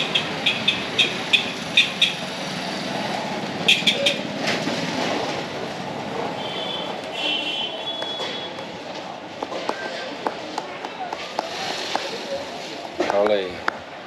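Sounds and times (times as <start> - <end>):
scooters and motorbikes passing: 0.0 - 7.1
street hum: 0.0 - 14.0.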